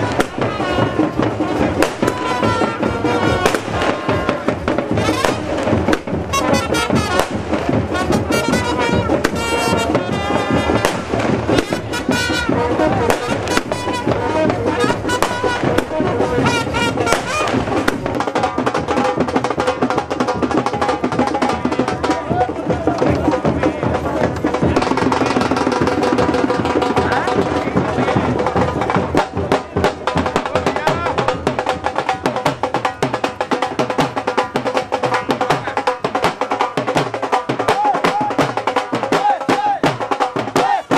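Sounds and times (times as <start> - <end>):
loud music: 0.0 - 19.7
fireworks crackling and bursting: 0.0 - 40.9.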